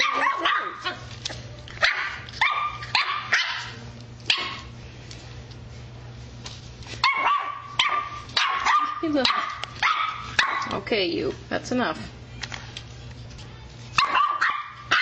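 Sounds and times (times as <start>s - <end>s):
puppy yapping: 0.0s - 1.1s, 1.8s - 4.7s, 7.0s - 10.8s, 14.0s - 15.0s.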